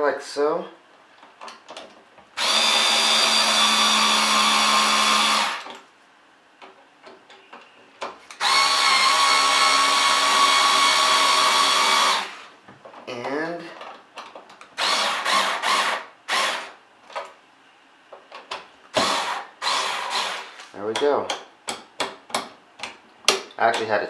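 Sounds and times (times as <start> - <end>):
electric screwdriver whining: 2.4 - 5.8, 8.4 - 12.5, 14.8 - 16.8, 18.9 - 20.6.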